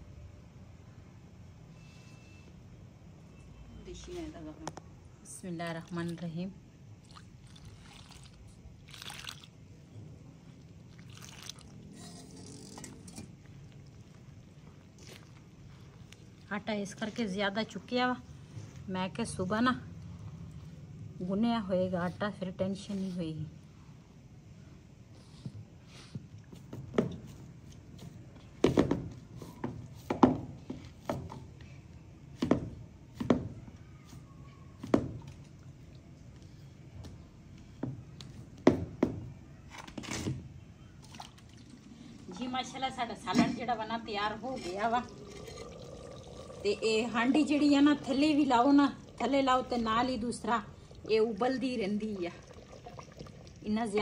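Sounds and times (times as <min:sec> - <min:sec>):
wet dough squelching: 0:07.0 - 0:09.7, 0:10.4 - 0:17.9.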